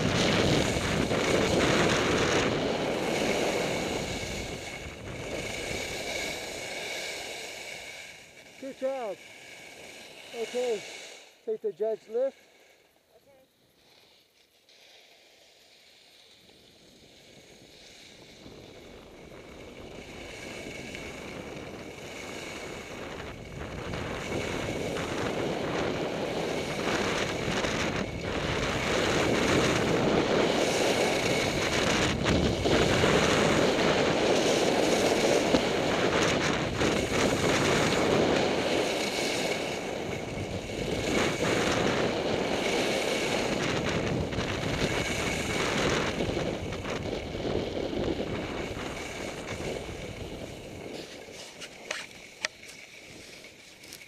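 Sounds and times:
wind rushing over microphone: 0.0s - 11.9s, 16.9s - 52.4s.

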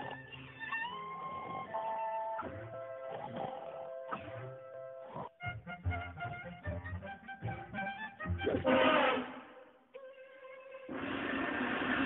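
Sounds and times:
cartoon music with bass beat: 5.4s - 8.8s.

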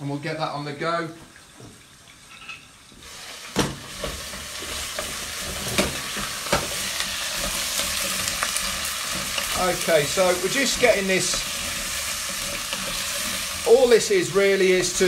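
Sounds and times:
vegetables sizzling in oil: 1.4s - 15.0s
wooden spoon knocking pan: 3.6s - 15.0s.

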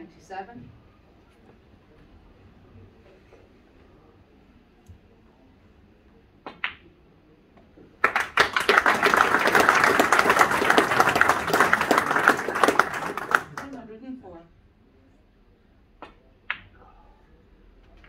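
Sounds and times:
audience applauding: 8.0s - 13.8s.

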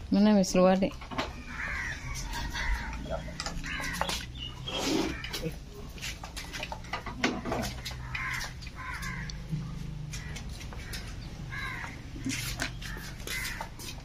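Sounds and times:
bird cawing: 1.3s - 5.5s, 7.6s - 13.8s.

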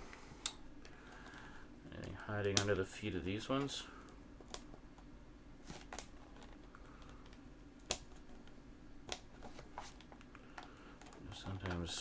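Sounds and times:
faint clicks and taps on plastic: 5.9s - 11.9s.

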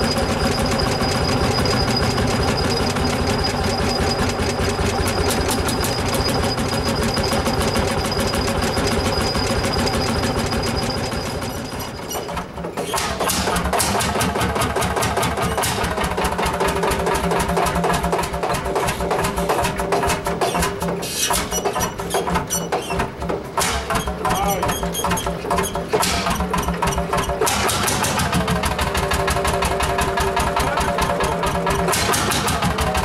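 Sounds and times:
tractor engine running: 0.0s - 33.0s
different engine beat: 13.1s - 22.4s, 23.0s - 33.0s.

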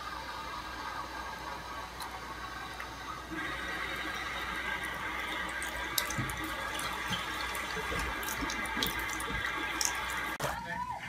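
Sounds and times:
tap running into sink: 4.8s - 10.4s.

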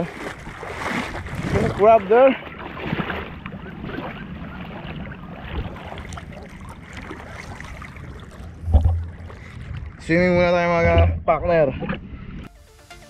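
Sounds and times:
seawater sloshing and splashing: 0.0s - 12.2s
low thump: 8.6s - 9.4s, 10.8s - 12.0s.

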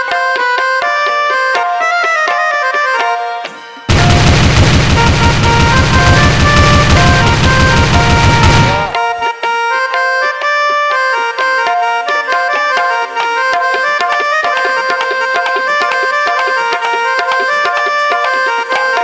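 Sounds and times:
tabla-style percussion: 0.0s - 19.0s
quick clicks: 3.9s - 9.0s.

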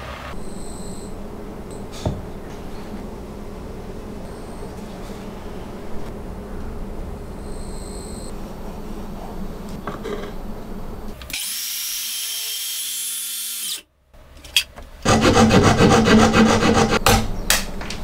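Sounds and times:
circular saw whining: 0.0s - 9.6s
hand saw rasping strokes: 15.0s - 17.0s.

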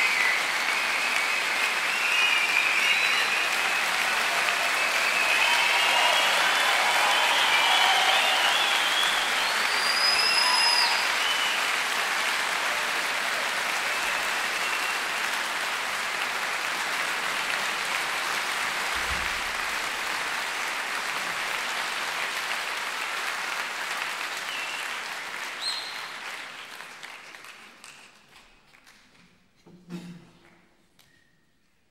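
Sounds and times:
crowd whistles: 0.0s - 15.4s, 24.3s - 26.7s
audience applauding: 0.0s - 29.2s.

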